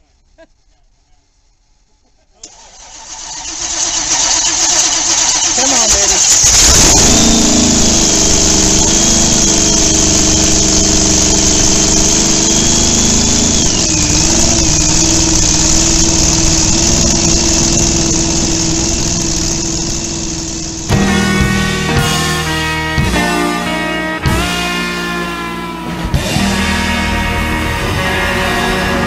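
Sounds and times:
motorcycle engine idling: 3.6 - 23.5.

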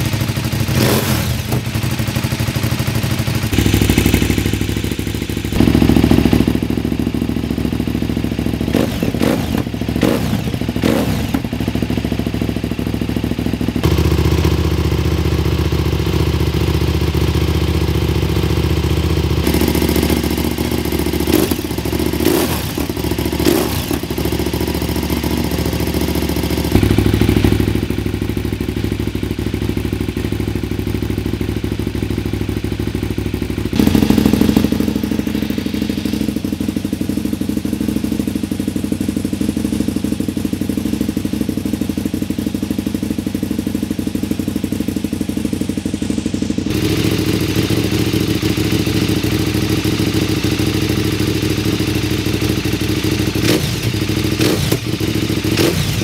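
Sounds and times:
motorcycle engine idling and blipping: 0.0 - 56.0.

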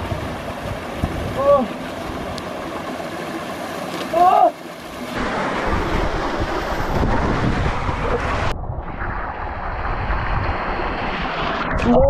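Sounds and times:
wind buffeting microphone: 0.0 - 2.4, 5.2 - 12.0
water churning and sloshing: 0.0 - 12.0.

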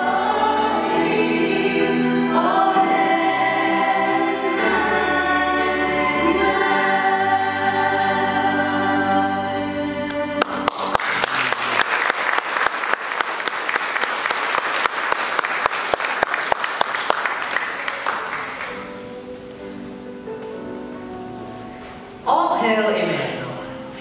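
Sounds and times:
soft music: 0.0 - 11.2, 17.4 - 24.0
audience applause: 10.4 - 19.0.

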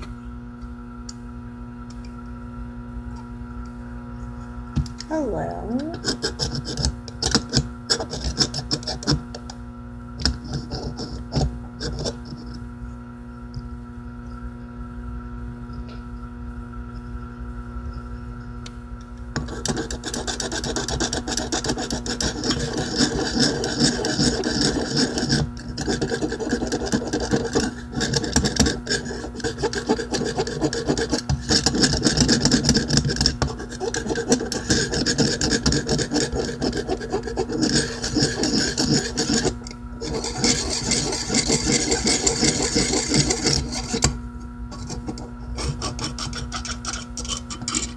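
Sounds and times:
metal stick scraping bowl: 19.4 - 47.9.

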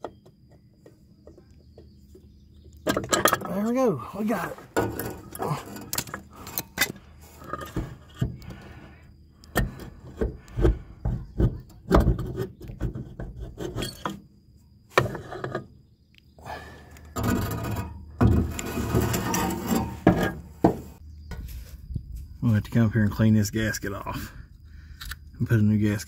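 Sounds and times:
metal knocks and clunks: 0.0 - 3.7, 4.6 - 8.6, 9.5 - 14.2, 17.2 - 21.5
metal rubbing and scraping: 4.4 - 8.4, 17.2 - 21.0.

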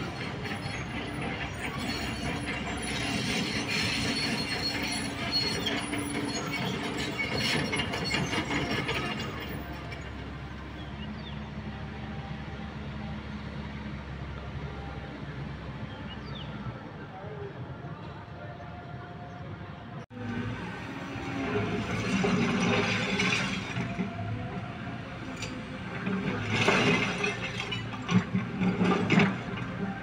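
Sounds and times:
excavator tracks clanking: 0.0 - 11.4, 20.4 - 30.0
excavator engine running: 0.0 - 13.3.

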